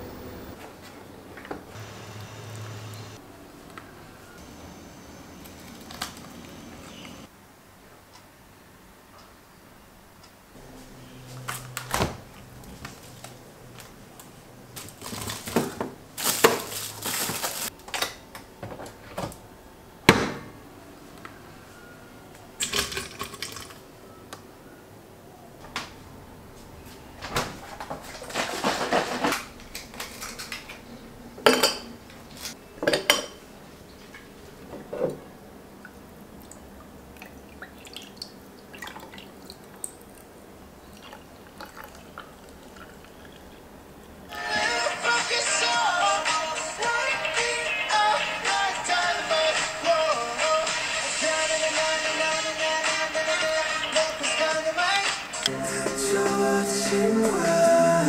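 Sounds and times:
glassware and utensils clinking: 31.4 - 31.9, 32.8 - 33.4.

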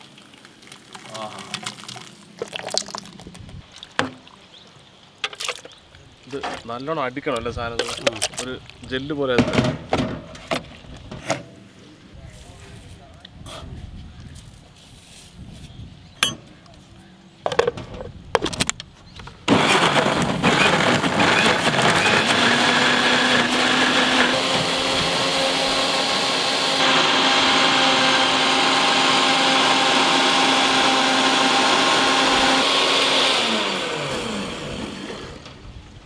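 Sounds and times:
mixer grinder motor whining: 19.5 - 35.6.

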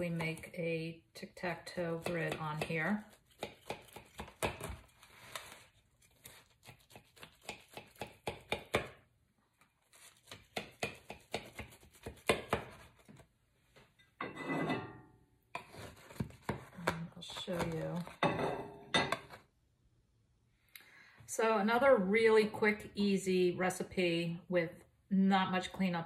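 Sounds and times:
knife scraping aluminium foil pan: 4.6 - 7.7.

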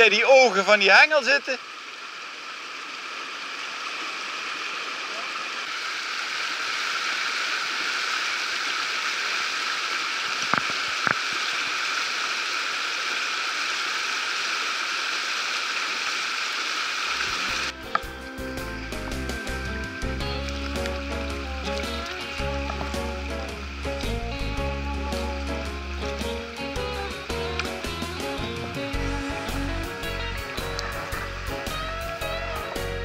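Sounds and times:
river rapids rushing: 16.2 - 33.0.

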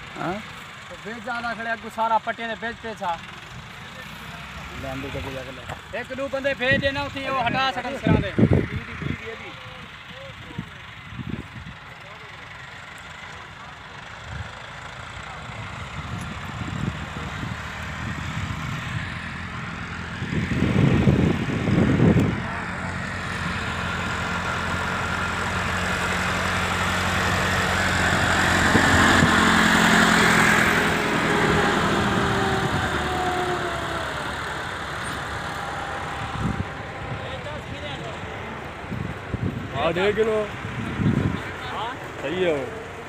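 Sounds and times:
tractor engine running under load: 0.0 - 43.0
low rumbles: 14.2 - 43.0.

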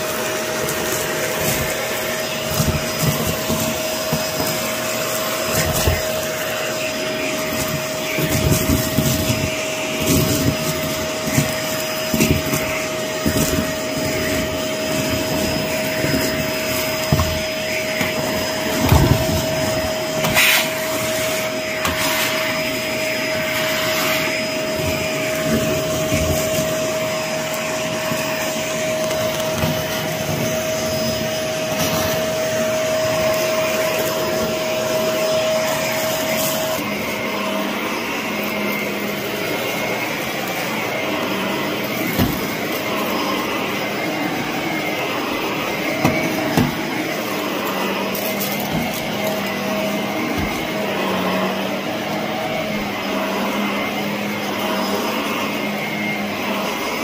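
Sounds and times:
vacuum cleaner running: 0.0 - 57.0
scraps rattling up vacuum tube: 0.2 - 22.4.

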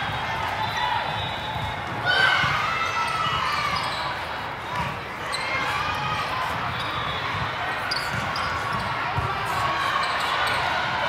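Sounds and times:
spectators' voices: 0.0 - 11.0
shoe squeaks: 3.6 - 4.2, 7.8 - 9.0, 9.9 - 10.7.

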